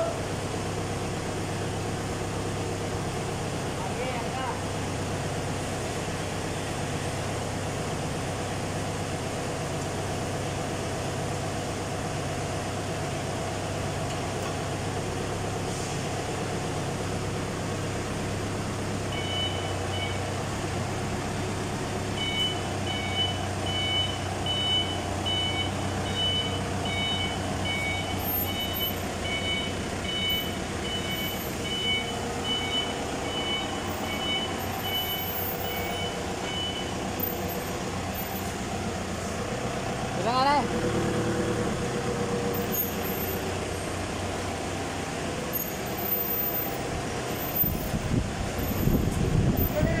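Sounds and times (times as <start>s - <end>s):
forklift engine running: 0.0s - 50.0s
reversing alarm beeping: 19.0s - 20.6s, 21.6s - 38.5s.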